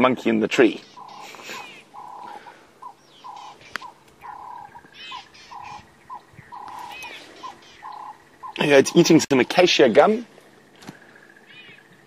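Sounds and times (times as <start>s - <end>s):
high arching bird chirps: 0.6s - 9.8s
low buzzy two-part bird call: 0.8s - 9.5s, 10.6s - 12.0s.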